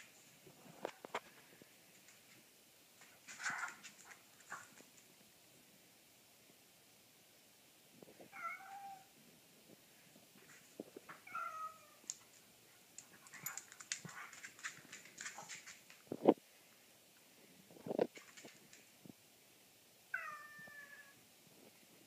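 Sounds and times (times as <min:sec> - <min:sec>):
cat meowing: 0:08.3 - 0:09.1, 0:11.2 - 0:12.1, 0:20.1 - 0:21.2
light clicks and taps: 0:13.0 - 0:16.4.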